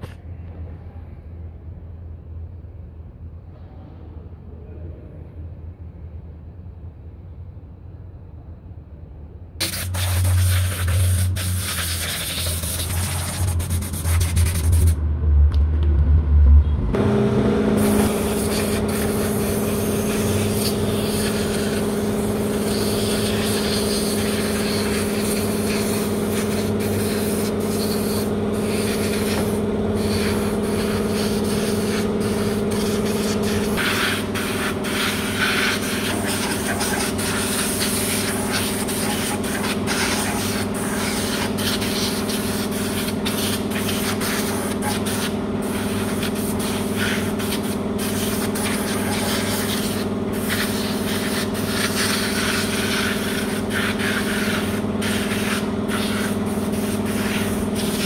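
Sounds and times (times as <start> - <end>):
compressed air blow gun hissing: 9.6 - 14.2, 17.8 - 58.0
machine hum: 10.0 - 41.7.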